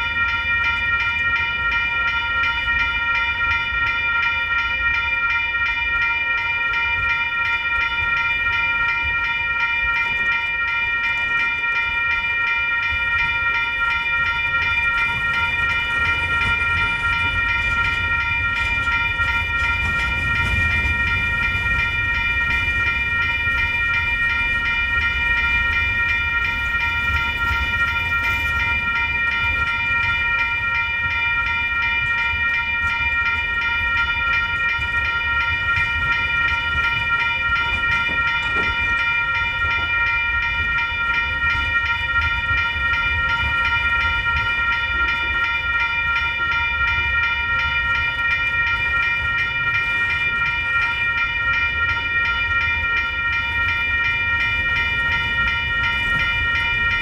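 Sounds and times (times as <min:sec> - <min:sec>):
crossing warning bell ringing: 0:00.0 - 0:57.0
freight cars rumbling on rails: 0:13.2 - 0:46.7.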